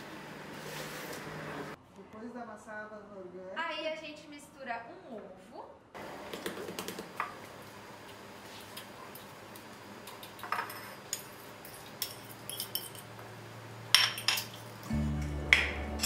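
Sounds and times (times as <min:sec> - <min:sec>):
fork clinking on glass dishes: 0:10.4 - 0:13.1.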